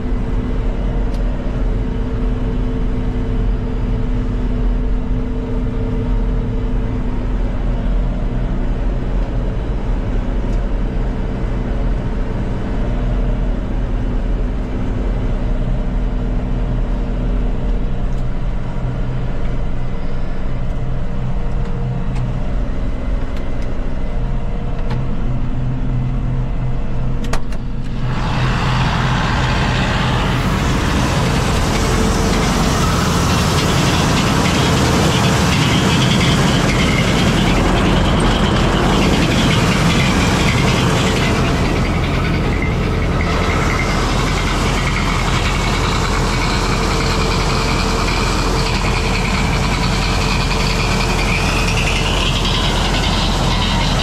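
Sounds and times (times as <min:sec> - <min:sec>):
diesel tractor engine running: 0:00.0 - 0:54.0
loud mechanical clatter: 0:27.2 - 0:54.0.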